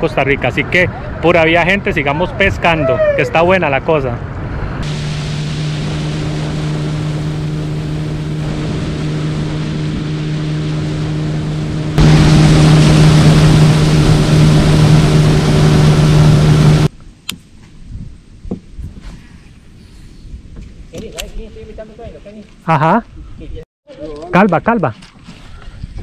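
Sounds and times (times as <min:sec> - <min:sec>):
motorboat engine humming: 0:00.0 - 0:16.9
rush of wind and water: 0:00.0 - 0:19.7.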